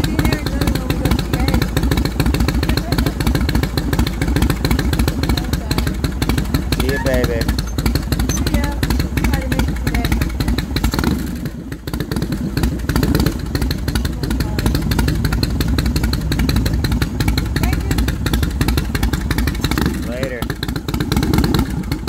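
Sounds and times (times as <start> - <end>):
motorcycle engine idling: 0.0 - 22.0.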